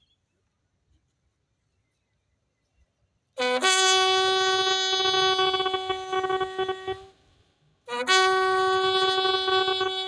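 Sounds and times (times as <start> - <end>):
bugle call: 3.4 - 7.2, 7.9 - 10.0.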